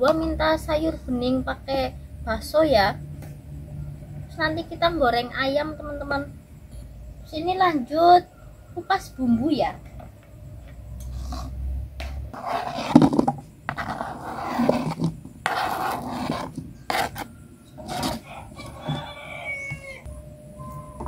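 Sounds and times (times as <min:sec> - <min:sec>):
knife cutting on plastic board: 0:12.3 - 0:18.2
slices scraped into bowl: 0:12.3 - 0:18.3.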